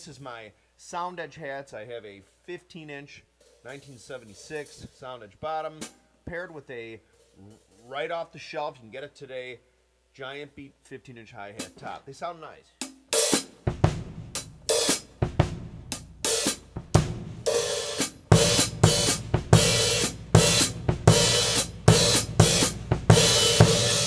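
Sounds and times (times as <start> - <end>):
drum kit played with sticks: 3.4 - 5.0, 11.6 - 12.0, 12.8 - 24.0
cymbal and hi-hat wash: 3.4 - 5.2, 12.8 - 24.0.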